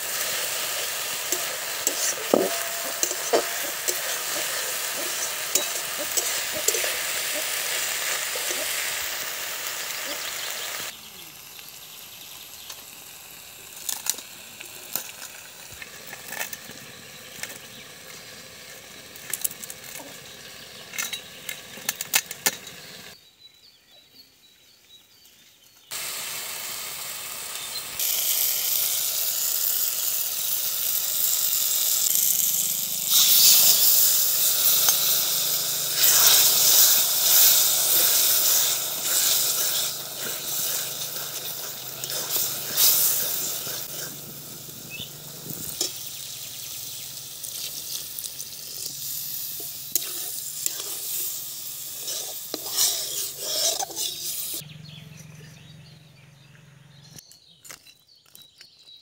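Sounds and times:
metal spatula scraping wok: 0.0 - 10.9, 30.9 - 46.2, 47.5 - 54.6
curry sizzling: 0.0 - 23.2, 25.9 - 54.6
greens frying in a wok: 0.0 - 23.2, 25.8 - 55.0.

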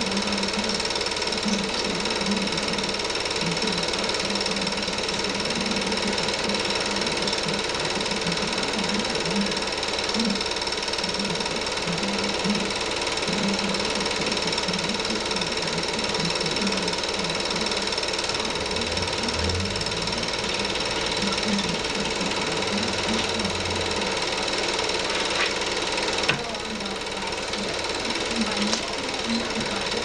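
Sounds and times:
film projector whirring: 0.0 - 30.0.

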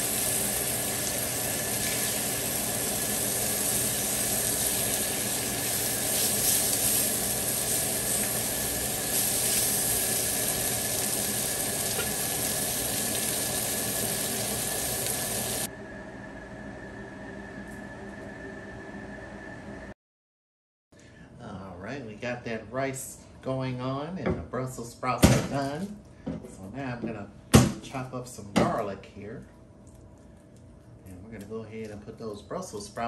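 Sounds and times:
food sizzling on a griddle: 0.0 - 15.7.

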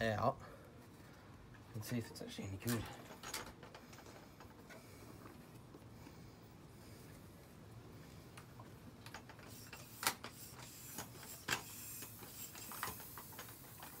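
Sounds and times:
faint hiss of air: 3.9 - 14.0.

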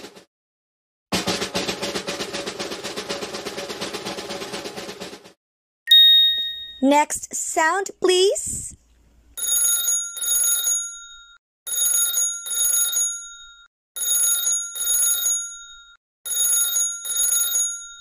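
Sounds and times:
telephone ringing: 9.4 - 18.0.

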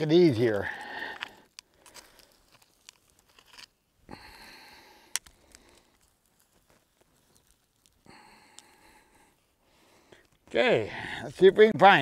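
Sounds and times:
pick scraping gravelly dirt: 0.0 - 9.4.

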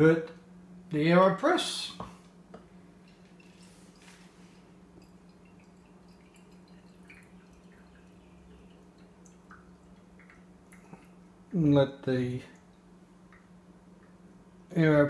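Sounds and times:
steady low hum: 0.0 - 15.0
coffee dripping into a cup: 3.0 - 11.5.

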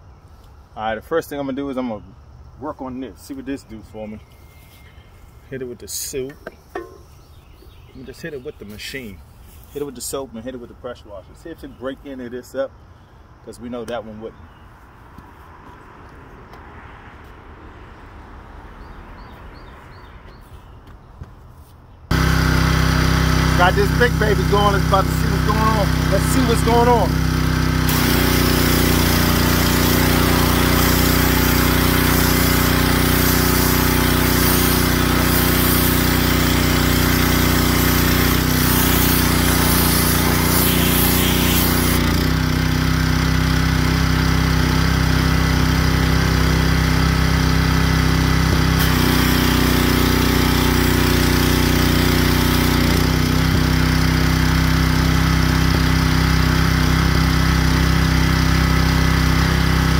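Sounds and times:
high-pressure spray hissing on concrete: 22.1 - 42.3, 48.5 - 57.5
pressure washer engine running: 22.1 - 59.9.

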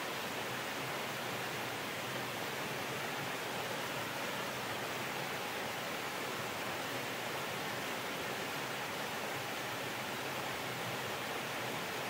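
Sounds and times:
waterfall pouring over rocks: 0.0 - 12.0.

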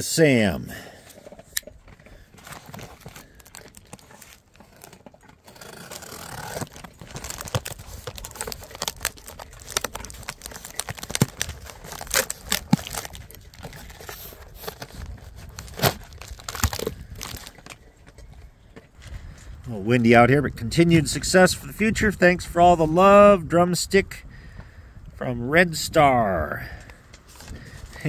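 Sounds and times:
cardboard crinkling and rustling: 1.4 - 18.3
packing tape tearing: 2.4 - 17.8.

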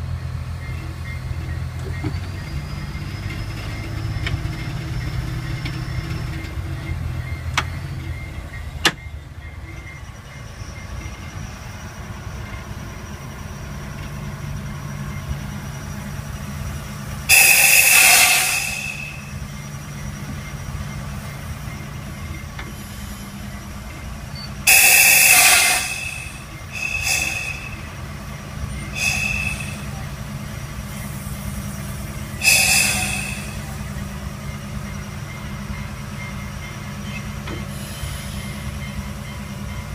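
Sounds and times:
diesel engine drone: 0.0 - 39.9
loud high-pitched bursts: 17.3 - 19.4, 24.6 - 28.1, 28.9 - 30.2, 32.4 - 33.9.

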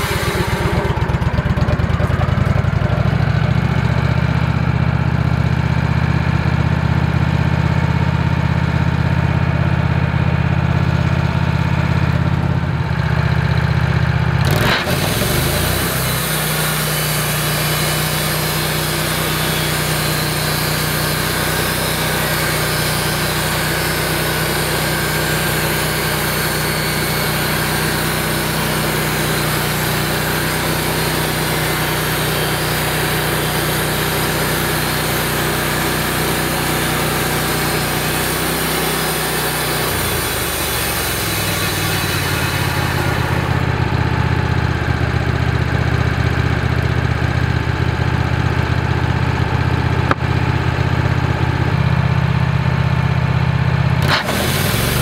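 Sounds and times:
blade sawing a log: 0.0 - 1.7, 14.4 - 43.7, 54.0 - 55.0
sawmill engine running under load: 0.0 - 55.0.

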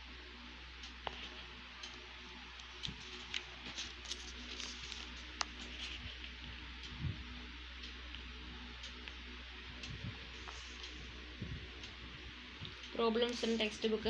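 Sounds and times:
faint steady hum: 0.0 - 14.0
paper pages rustling and turning: 2.7 - 6.3.

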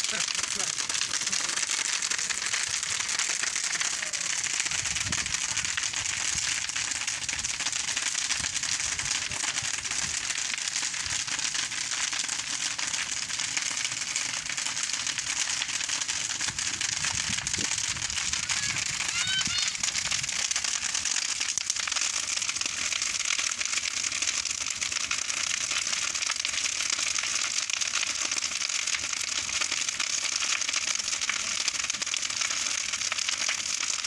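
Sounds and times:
rush of flames: 0.0 - 29.6
bonfire crackling: 0.0 - 34.0.

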